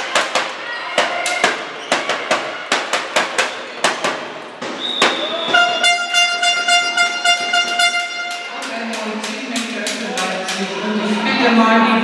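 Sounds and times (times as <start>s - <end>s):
horn long held note: 5.6s - 8.6s.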